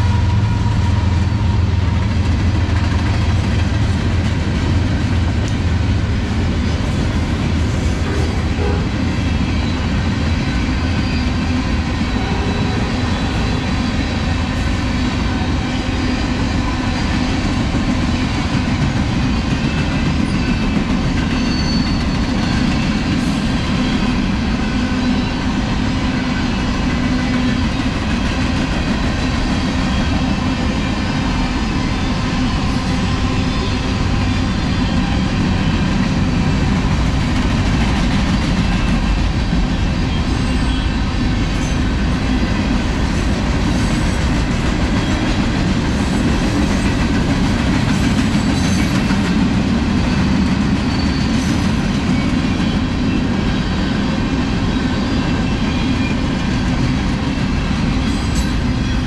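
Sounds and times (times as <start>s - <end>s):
train wheels rumbling and rattling: 0.0s - 59.0s.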